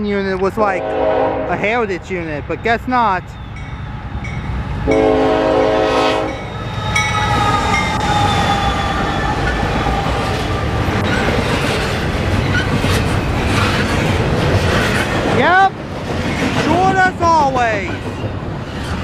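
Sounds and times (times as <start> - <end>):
freight train rumbling past: 0.0 - 19.0
locomotive air horn blasts: 0.8 - 1.6, 4.9 - 6.5.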